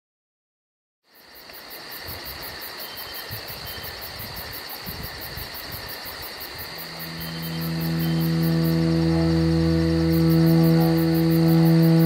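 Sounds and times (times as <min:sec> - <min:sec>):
high pulsing insect chirp: 0:01.1 - 0:12.0
insects trilling: 0:01.1 - 0:12.0
low rumbles: 0:06.6 - 0:12.0.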